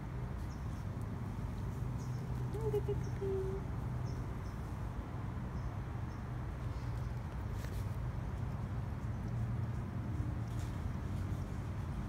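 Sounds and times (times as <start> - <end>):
faint animal call: 2.5 - 3.7.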